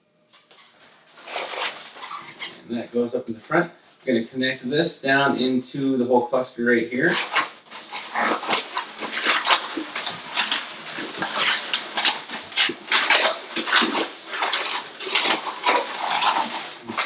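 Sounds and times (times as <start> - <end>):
balloons squeaking and rubbing: 0.5 - 3.6, 6.9 - 17.0.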